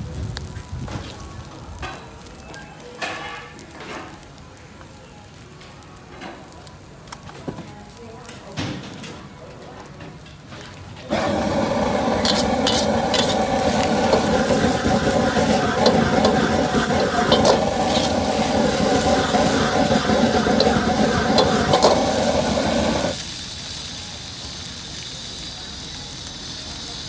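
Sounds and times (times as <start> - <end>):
noodles sizzling in a wok: 11.0 - 27.0
metal spatula scraping a wok: 11.1 - 23.2.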